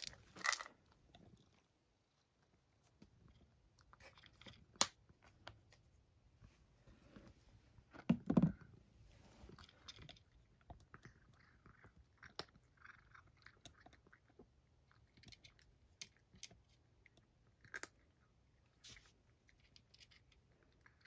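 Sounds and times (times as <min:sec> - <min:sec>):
cat crunching dry kibble: 0:00.0 - 0:02.5, 0:03.1 - 0:05.8, 0:09.4 - 0:21.0.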